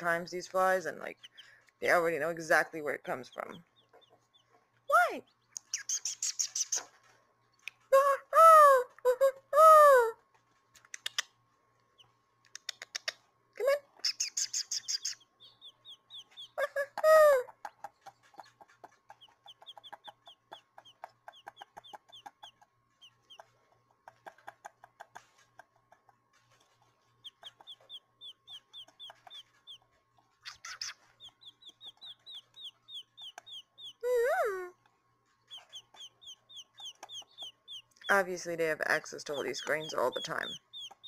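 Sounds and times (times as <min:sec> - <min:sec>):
quail chicks peeping: 0:00.0 - 0:07.9, 0:10.9 - 0:13.3, 0:13.9 - 0:41.0
person imitating quail clucking: 0:16.3 - 0:22.6.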